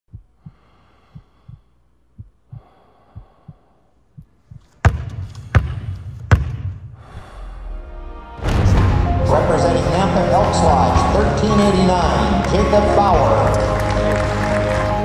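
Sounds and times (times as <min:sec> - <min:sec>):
heartbeat thumps: 0:00.1 - 0:07.3
sudden loud hit: 0:08.4 - 0:09.5.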